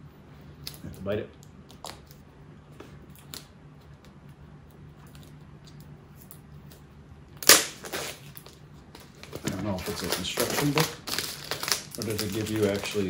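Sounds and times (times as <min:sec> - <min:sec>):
plastic packaging ripping: 0:07.4 - 0:13.0
plastic packaging rustling: 0:07.8 - 0:13.0.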